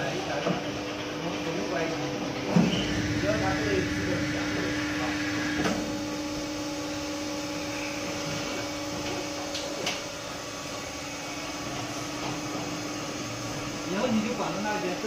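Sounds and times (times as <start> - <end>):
machine hum: 2.6 - 15.0
higher machine tone: 2.7 - 5.6.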